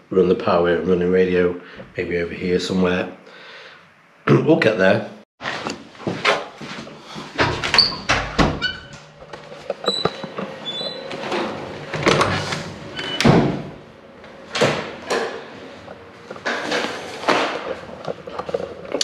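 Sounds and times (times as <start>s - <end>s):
footsteps: 5.5s - 7.8s
doors swinging open and shut: 7.3s - 18.3s
door squeaks: 7.6s - 13.7s.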